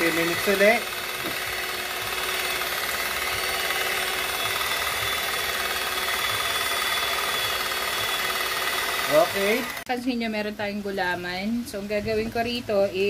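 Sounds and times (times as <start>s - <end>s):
electric hand mixer whining: 0.0s - 10.0s.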